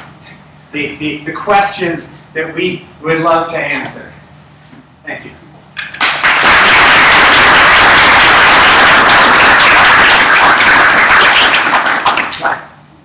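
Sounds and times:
audience applauding: 0:05.9 - 0:12.7.

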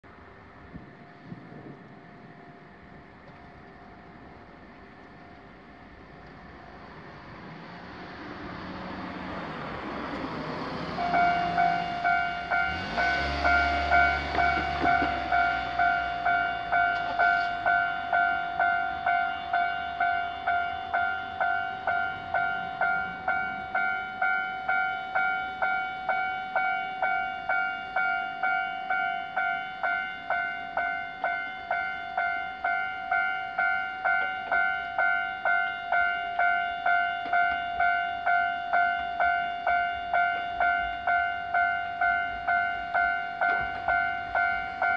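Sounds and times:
level-crossing warning bell: 0:09.1 - 0:44.9.

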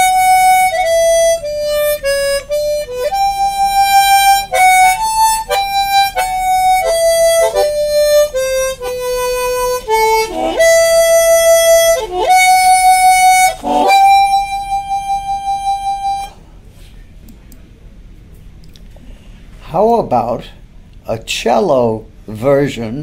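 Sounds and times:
harmonica playing slow melody: 0:00.0 - 0:16.4.

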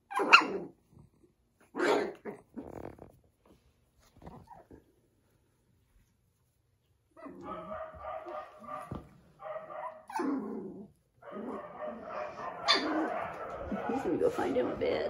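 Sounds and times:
puppy barking and yelping: 0:00.0 - 0:00.8, 0:01.6 - 0:02.6, 0:07.2 - 0:15.0.

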